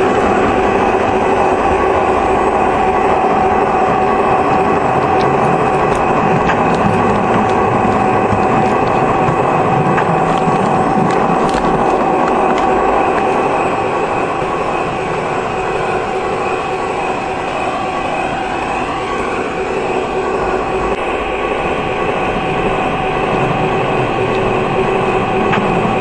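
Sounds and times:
wheels rolling on rails: 0.0 - 18.0, 18.6 - 26.0
electric motor and gear whine: 0.0 - 26.0
wheels clicking over track joints: 3.0 - 13.8.

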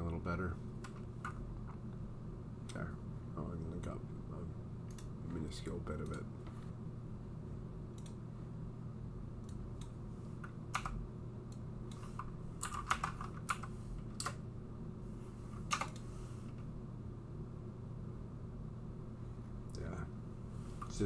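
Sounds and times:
steady low hum: 0.0 - 21.0
computer keyboard keystrokes: 9.5 - 11.0, 11.9 - 14.4, 15.6 - 16.1.

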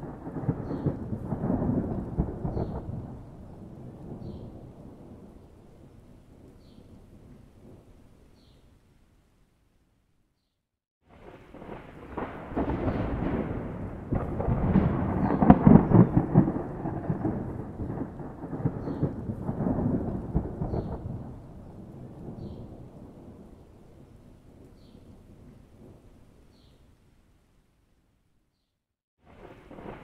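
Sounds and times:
thunder rumbling: 0.0 - 7.9, 11.1 - 26.2, 29.2 - 30.0.

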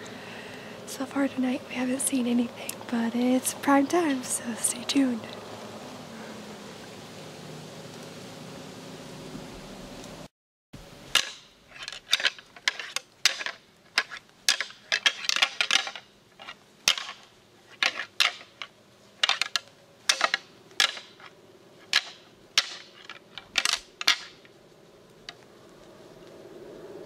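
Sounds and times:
deer antlers clashing: 11.1 - 24.6.

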